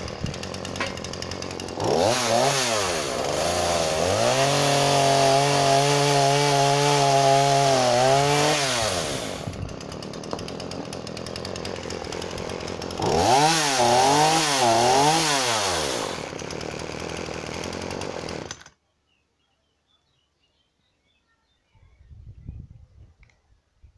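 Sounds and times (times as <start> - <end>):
chainsaw idling: 0.0 - 18.7
chainsaw cutting log: 0.0 - 18.8.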